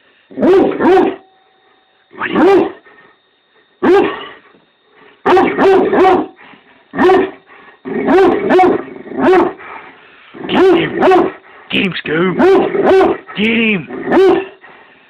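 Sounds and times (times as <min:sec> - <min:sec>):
dog barking angrily: 0:00.3 - 0:01.2, 0:02.2 - 0:02.8, 0:03.8 - 0:04.3, 0:05.2 - 0:06.4, 0:07.0 - 0:09.6, 0:10.4 - 0:11.4, 0:12.3 - 0:14.6.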